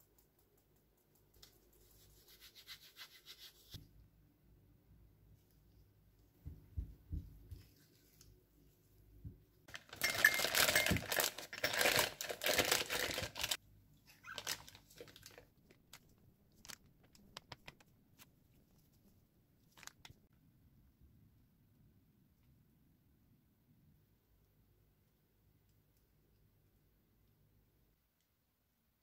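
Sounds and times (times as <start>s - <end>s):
plastic bag crinkling: 9.7s - 17.3s, 19.7s - 20.2s.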